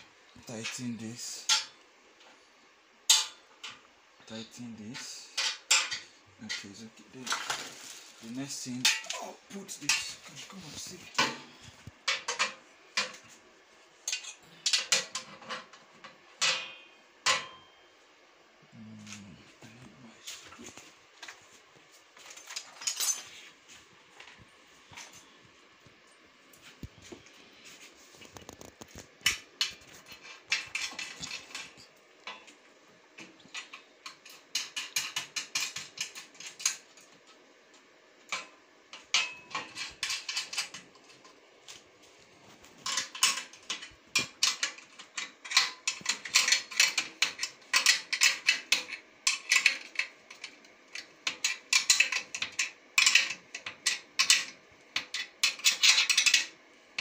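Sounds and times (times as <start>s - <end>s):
metal parts clinking: 22.2s - 23.3s, 42.8s - 56.5s.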